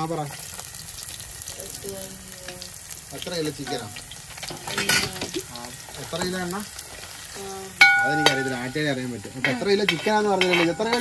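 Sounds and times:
garlic sizzling in hot oil: 0.0s - 11.0s
metal ladle scraping a pot: 6.0s - 11.0s.

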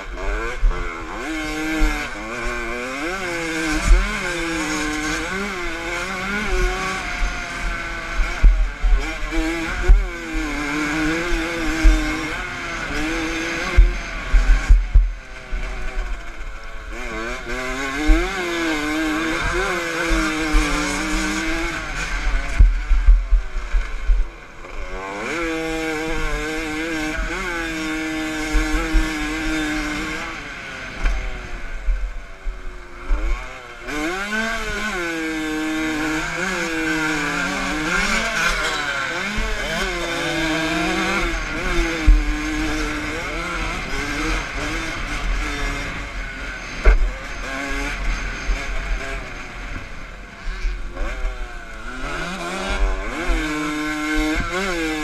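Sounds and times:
dirt bike engine revving: 0.0s - 55.0s
low rumbling thumps: 13.8s - 15.2s.

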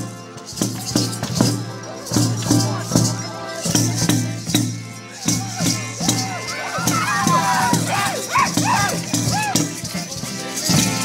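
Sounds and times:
hand drums beating: 0.0s - 11.0s
voices crying out: 5.0s - 10.6s.

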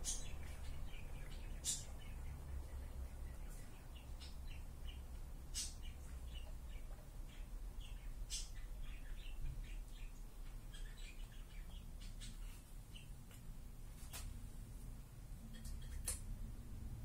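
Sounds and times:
low steady rumble: 0.0s - 17.0s
small birds chirping: 0.0s - 17.0s
sharp clicks: 15.6s - 16.3s.

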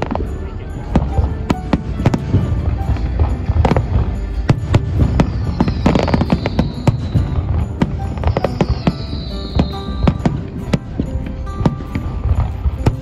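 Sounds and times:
firework bangs: 0.0s - 13.0s
music: 0.0s - 13.0s
high tone sliding downward: 5.0s - 10.4s.

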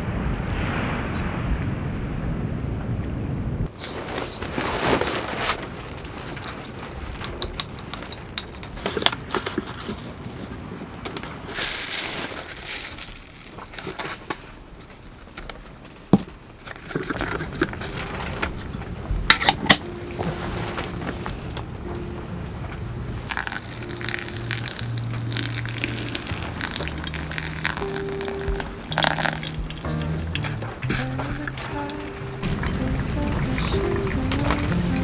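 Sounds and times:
coffee grounds rustling: 11.4s - 14.6s, 23.3s - 32.9s.

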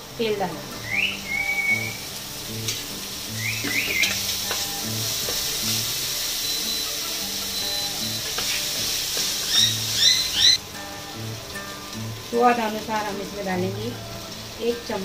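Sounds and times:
peas sizzling in oil: 0.0s - 15.0s
wooden spatula ticking against pan: 3.7s - 5.5s.

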